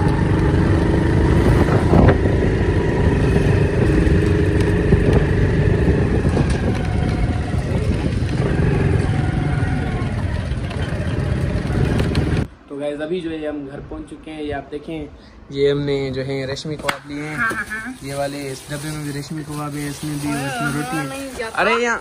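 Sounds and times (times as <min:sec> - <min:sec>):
motorcycle engine running: 0:00.0 - 0:12.5.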